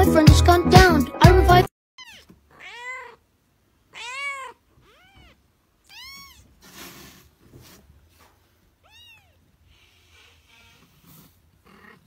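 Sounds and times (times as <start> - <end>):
kitten mewing: 2.0 - 3.3, 3.9 - 6.6
rustling: 4.8 - 12.0.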